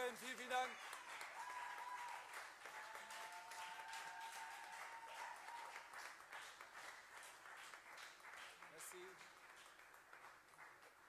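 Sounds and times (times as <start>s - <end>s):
faint applause: 0.0s - 11.0s.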